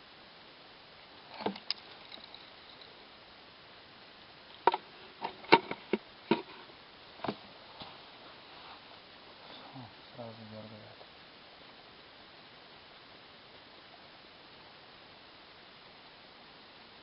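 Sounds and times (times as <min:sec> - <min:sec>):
fishing tackle clicks and knocks: 0:01.4 - 0:02.8.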